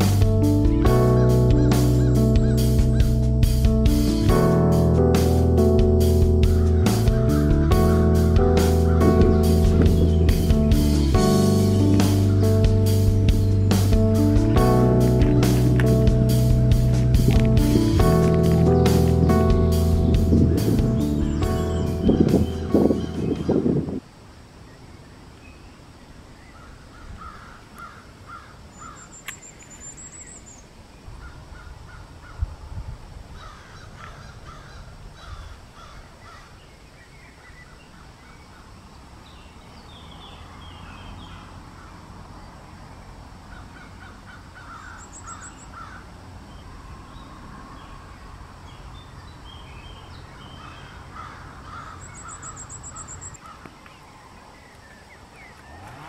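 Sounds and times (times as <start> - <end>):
bird harsh repeated calls: 0.0 - 3.7, 6.1 - 23.9, 43.5 - 46.2, 50.4 - 53.8
small bird high chirps: 44.7 - 45.9, 51.7 - 54.1.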